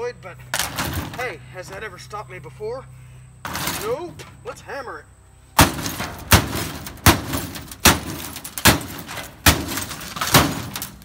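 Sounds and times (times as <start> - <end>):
hammer smashing plastic: 5.6 - 11.0.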